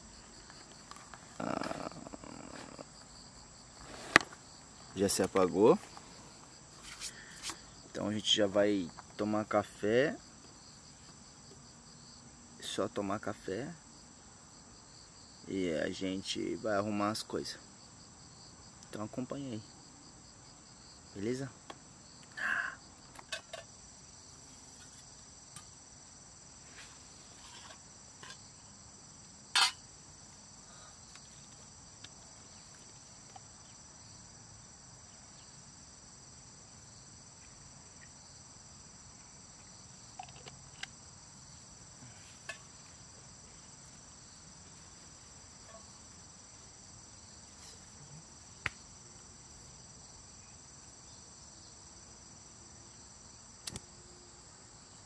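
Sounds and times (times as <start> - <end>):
insects shrilling: 0.0 - 11.3, 20.6 - 25.8.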